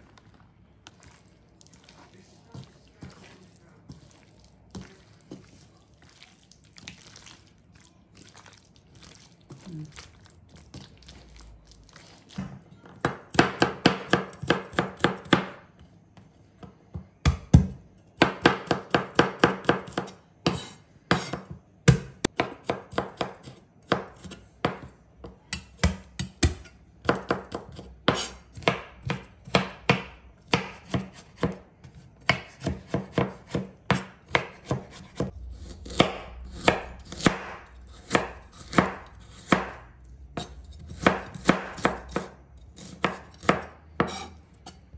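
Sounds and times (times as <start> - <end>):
knife chopping on cutting board: 13.0 - 15.6, 16.6 - 44.3.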